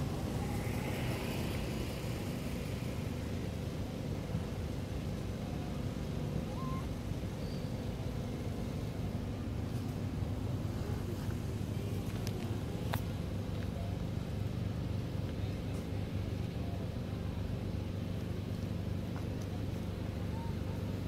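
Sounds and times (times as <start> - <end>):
engine idling hum: 0.0 - 21.0.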